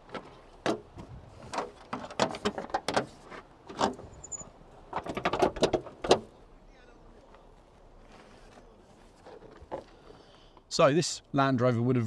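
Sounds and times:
car bonnet metal clicks and clanks: 0.0 - 6.3.

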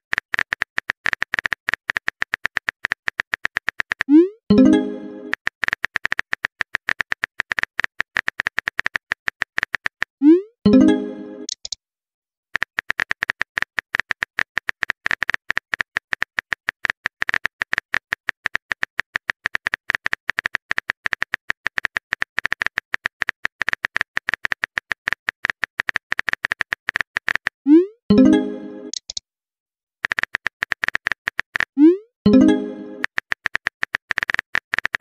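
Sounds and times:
simulated keyboard typing clicks: 0.1 - 11.8, 12.6 - 29.2, 30.0 - 35.0
rising pop tone: 4.1 - 5.4, 10.2 - 11.5, 27.7 - 29.0, 31.8 - 33.1.

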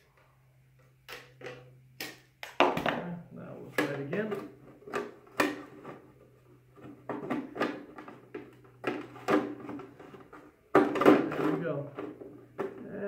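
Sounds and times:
plastic parts clattering and scraping: 3.8 - 12.8.

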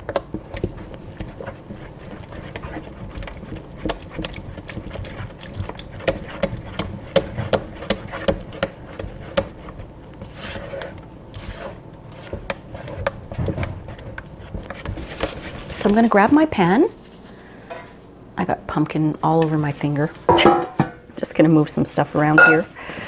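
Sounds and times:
batter sloshing and squelching: 0.0 - 17.6
spatula scraping metal bowl: 0.6 - 15.8.

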